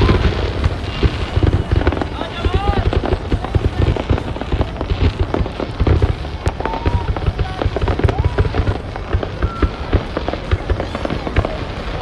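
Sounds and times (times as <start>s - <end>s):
fireworks booming: 0.0s - 12.0s
fireworks crackling: 0.0s - 12.0s.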